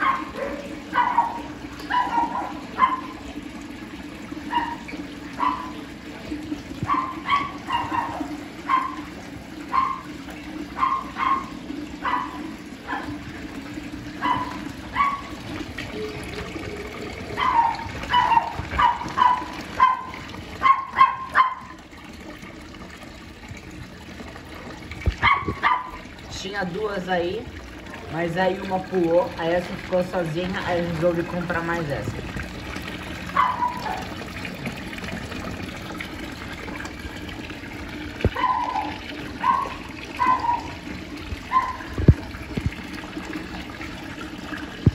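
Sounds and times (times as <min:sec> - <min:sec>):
water pouring into pond: 0:00.0 - 0:44.9
animal calling: 0:38.4 - 0:40.8.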